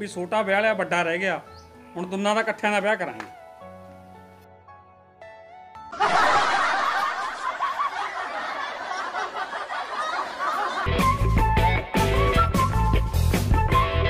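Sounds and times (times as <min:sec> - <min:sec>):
people laughing: 0:05.9 - 0:11.2
rock music with electric guitar: 0:10.9 - 0:14.0.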